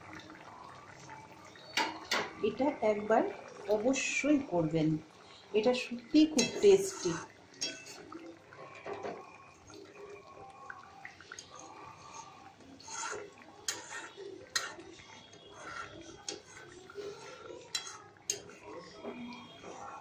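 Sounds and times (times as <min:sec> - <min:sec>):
curry bubbling in a steel pan: 0:00.0 - 0:20.0
spatula stirring: 0:05.6 - 0:20.0.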